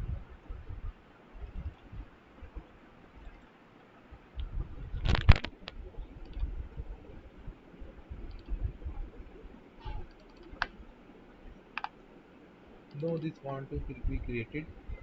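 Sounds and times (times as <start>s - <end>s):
low dull thuds: 0.0s - 2.7s
computer mouse clicks: 5.1s - 6.5s, 8.2s - 8.6s, 9.8s - 10.8s, 11.8s - 12.0s.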